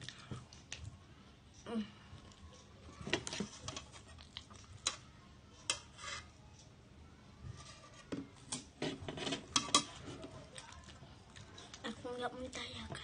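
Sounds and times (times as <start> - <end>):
metal spoon scraping ceramic plate: 5.7 - 6.3, 7.7 - 10.0.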